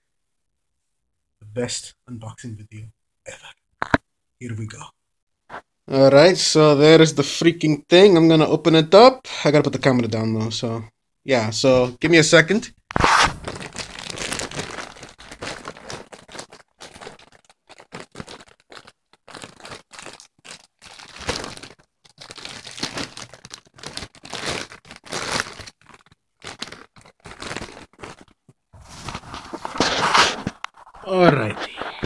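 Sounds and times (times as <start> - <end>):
plastic bag crinkling and tearing: 12.9 - 30.9.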